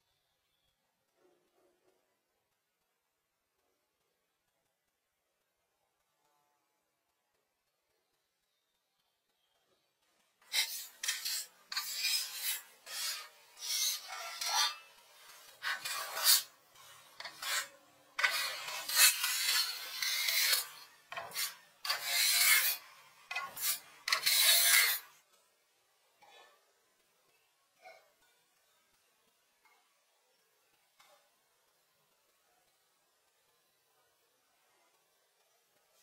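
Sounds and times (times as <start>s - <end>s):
hand sanding a wall: 10.5s - 25.1s.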